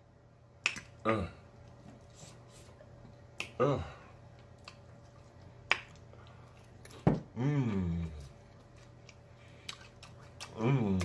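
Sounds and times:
mouth clicks and smacks: 0:00.6 - 0:01.0, 0:03.3 - 0:03.6, 0:04.4 - 0:06.1
person humming mmm: 0:03.4 - 0:04.1, 0:07.3 - 0:08.4, 0:10.4 - 0:11.0
chewing crunchy food: 0:04.2 - 0:07.0, 0:08.0 - 0:11.0.

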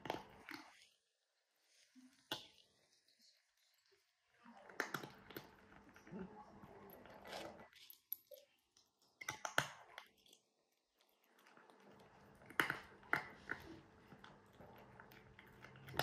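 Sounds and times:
cat crunching dry kibble: 0:06.6 - 0:16.0.

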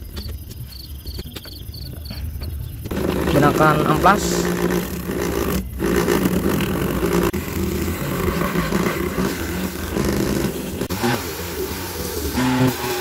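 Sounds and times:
small motor whirring: 0:02.9 - 0:13.0.

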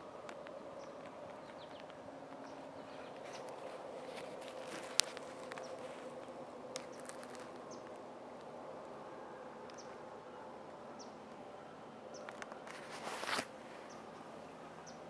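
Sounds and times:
faint steady hum: 0:00.0 - 0:15.0
light clicks or rustles: 0:00.2 - 0:08.5, 0:12.2 - 0:14.0.

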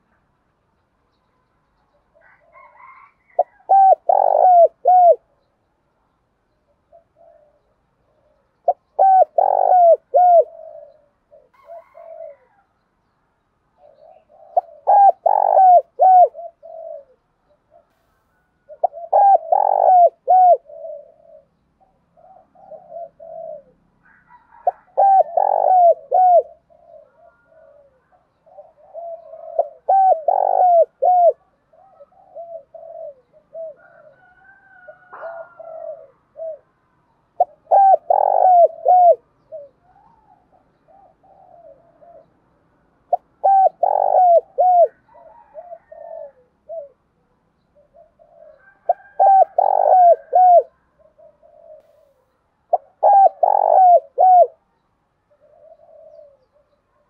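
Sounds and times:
dove cooing: 0:02.1 - 0:05.4, 0:06.7 - 0:12.7, 0:13.8 - 0:57.0.

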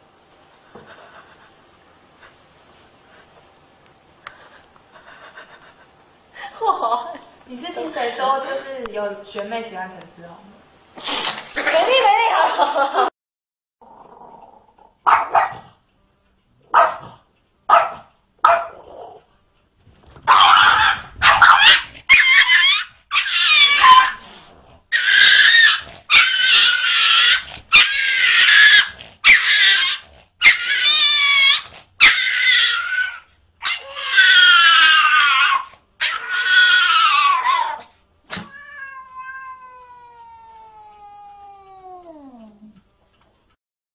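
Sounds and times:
cat yowling: 0:20.3 - 0:24.2, 0:24.9 - 0:42.6.

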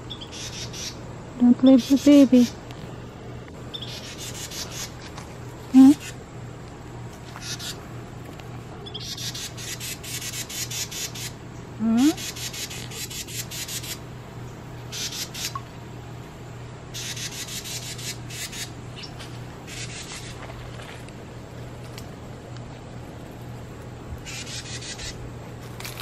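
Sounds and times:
wren chattering calls: 0:00.0 - 0:01.0, 0:01.6 - 0:02.6, 0:03.7 - 0:05.2, 0:05.8 - 0:06.2, 0:07.3 - 0:07.8, 0:08.8 - 0:15.6, 0:16.9 - 0:20.4, 0:24.2 - 0:25.2.

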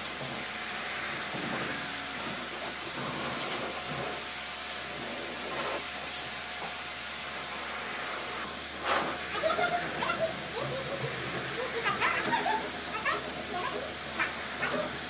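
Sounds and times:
blower dryer hissing: 0:00.0 - 0:15.0.

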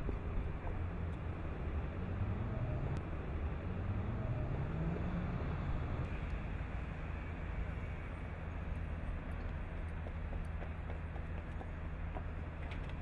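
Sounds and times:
traffic rumble: 0:00.0 - 0:13.0
vehicle engine revving: 0:01.8 - 0:03.0, 0:03.6 - 0:06.1.

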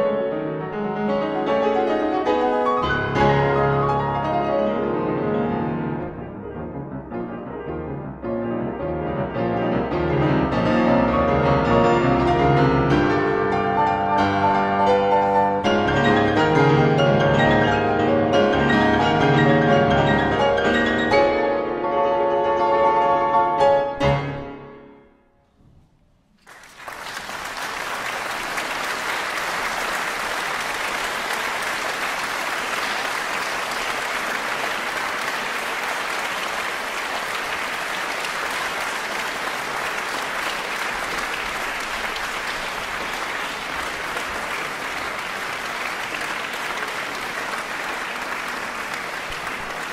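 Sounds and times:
audience applause: 0:26.4 - 0:49.9.

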